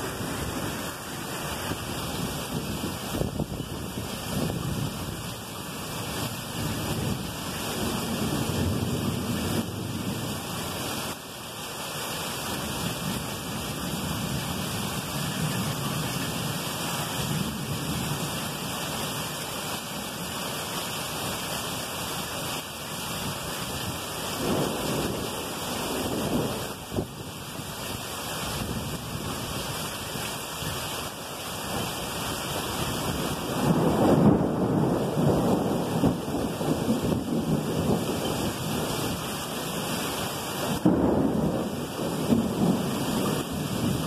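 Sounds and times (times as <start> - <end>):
rolling thunder: 0.0 - 10.8, 23.8 - 27.4, 32.8 - 39.3, 40.6 - 44.0
heavy rain falling: 0.0 - 44.0.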